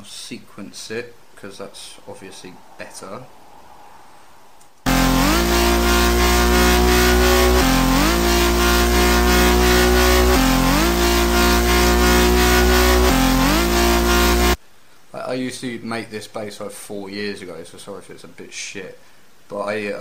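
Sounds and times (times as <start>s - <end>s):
distorted synth bass line: 4.9s - 14.6s.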